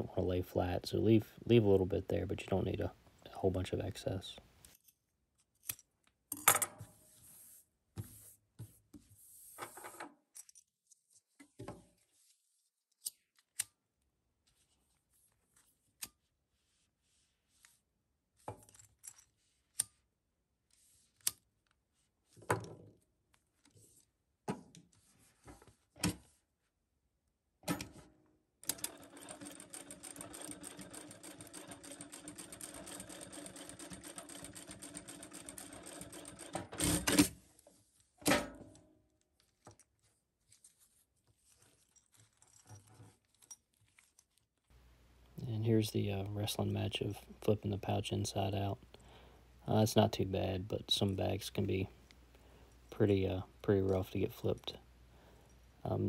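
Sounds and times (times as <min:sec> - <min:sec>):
sewing machine stitching: 0:28.6 - 0:37.4.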